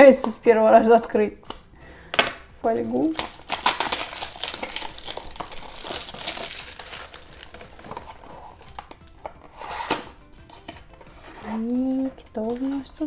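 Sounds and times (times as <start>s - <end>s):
foil crinkling as torn off box: 3.1s - 9.0s.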